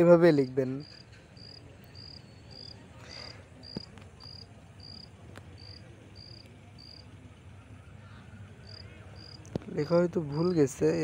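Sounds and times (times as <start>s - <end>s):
cricket chirping: 0.8s - 7.1s, 8.6s - 9.4s.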